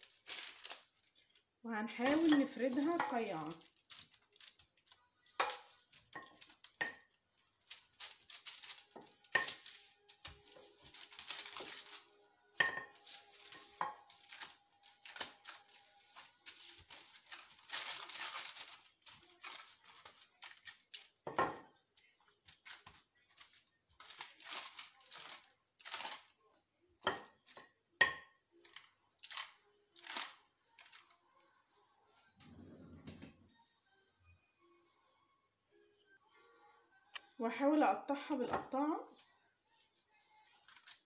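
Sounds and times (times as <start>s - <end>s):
baking paper scraping and crinkling: 0.0s - 27.6s, 28.6s - 31.4s, 40.6s - 41.0s.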